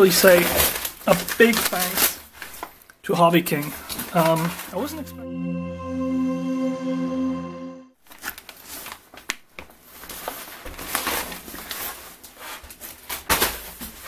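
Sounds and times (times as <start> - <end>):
jingle chord: 4.8 - 7.9.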